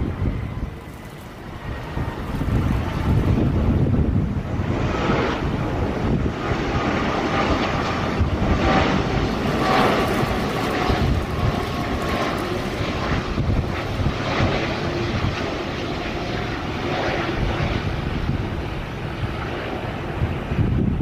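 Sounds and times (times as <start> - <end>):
faint engine whine: 0.0 - 21.0
jet engine rumble: 0.0 - 21.0.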